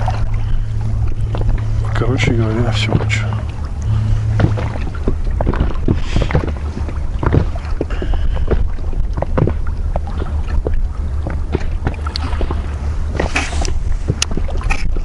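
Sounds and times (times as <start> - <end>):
waves slapping against boat hull: 0.0 - 15.0
wind rumble on microphone: 0.0 - 15.0.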